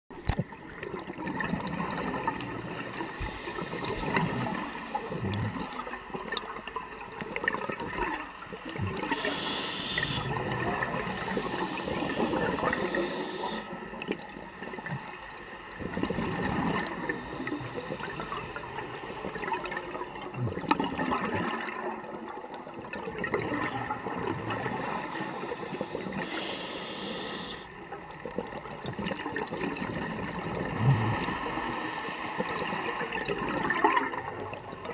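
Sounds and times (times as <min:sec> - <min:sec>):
diver bubbles gurgling: 0:00.4 - 0:27.6, 0:28.3 - 0:34.9
regulator hiss: 0:09.0 - 0:13.8, 0:25.3 - 0:27.7.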